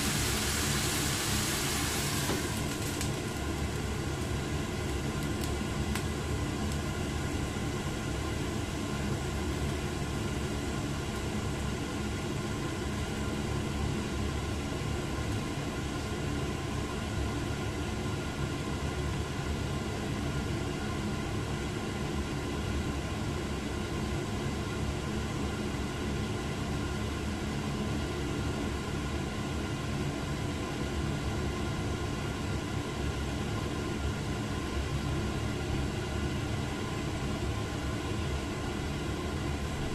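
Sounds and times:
frying pan hissing: 0.0 - 5.2.

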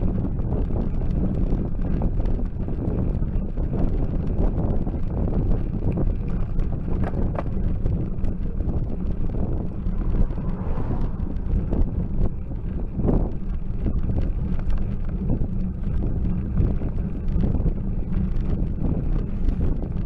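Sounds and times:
road rumble: 0.0 - 20.0
wind buffeting microphone: 0.0 - 20.0
car passing: 9.0 - 12.9.

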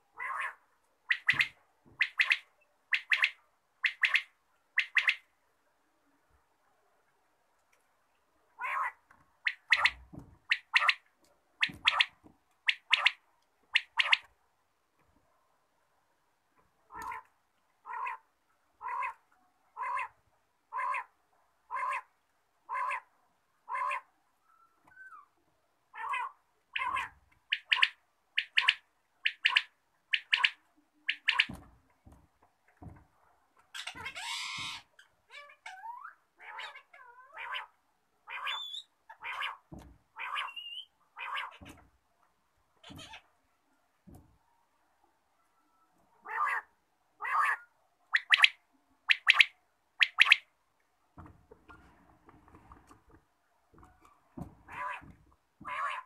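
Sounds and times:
quail calling: 0.2 - 5.3, 8.6 - 11.0, 11.6 - 14.3, 16.9 - 19.2, 19.8 - 21.1, 22.7 - 23.1, 23.7 - 24.1, 26.0 - 31.6, 33.7 - 41.8, 46.2 - 50.5, 54.6 - 56.0.

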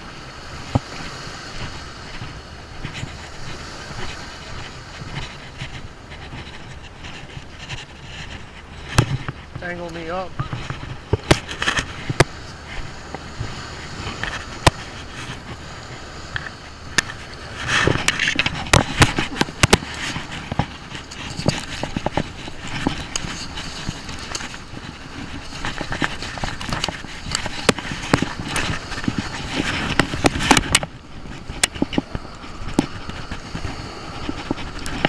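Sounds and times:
steady rushing noise: 0.0 - 35.0
fabric rubbing on microphone: 0.5 - 35.0
sharp clicks and knocks: 5.0 - 12.4, 13.0 - 15.6, 16.3 - 35.0.

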